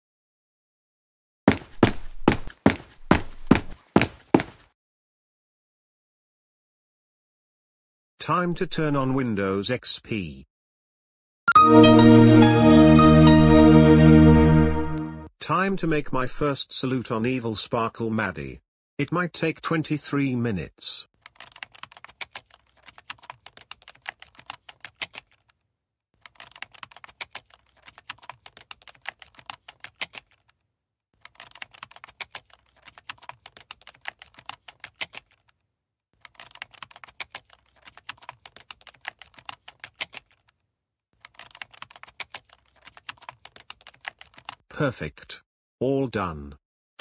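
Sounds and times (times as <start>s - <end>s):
rapid keyboard typing: 21.2s - 25.5s, 26.2s - 30.5s, 31.2s - 35.5s, 36.2s - 40.5s, 41.2s - 44.6s.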